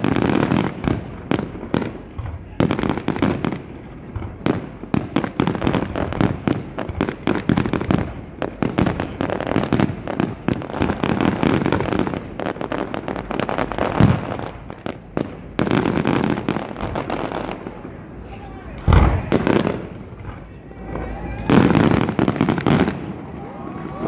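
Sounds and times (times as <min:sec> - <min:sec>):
fireworks bursts and crackling: 0:00.0 - 0:24.0
loud firework bang: 0:18.8 - 0:20.4.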